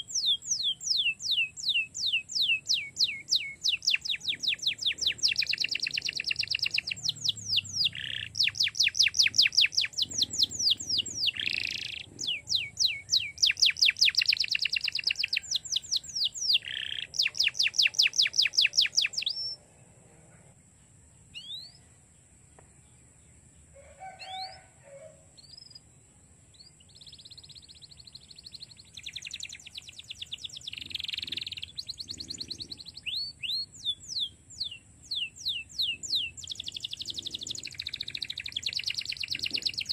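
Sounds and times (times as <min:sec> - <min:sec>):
canary chirps: 0:00.0 - 0:19.6, 0:21.3 - 0:21.8, 0:26.5 - 0:39.9
canary trilling: 0:00.0 - 0:19.6.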